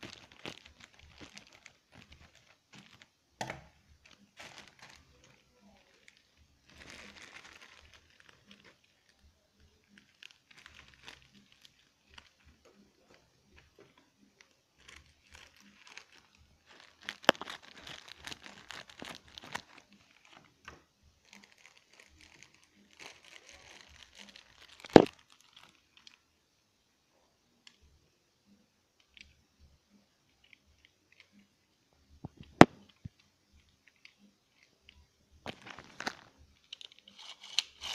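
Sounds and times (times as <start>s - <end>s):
plastic packaging crinkling: 0.0s - 9.2s, 9.8s - 26.2s, 35.4s - 37.9s.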